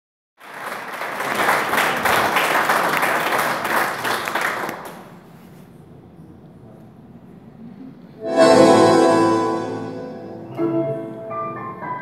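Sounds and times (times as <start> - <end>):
audience applauding: 0.4 - 5.2.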